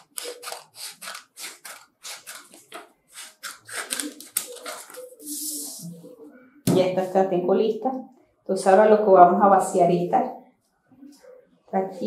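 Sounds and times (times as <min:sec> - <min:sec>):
scissors snipping paper: 0:00.0 - 0:05.2
paper rustling: 0:00.0 - 0:06.0.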